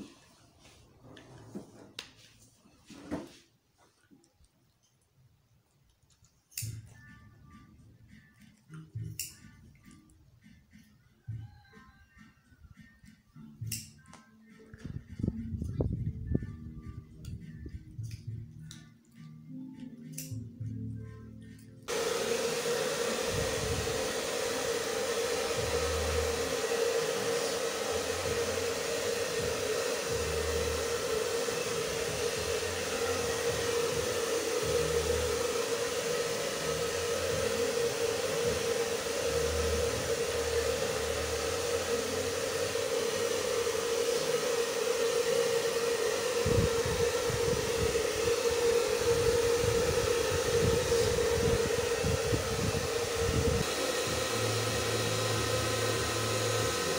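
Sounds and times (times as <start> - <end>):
hair dryer running: 21.8 - 56.9.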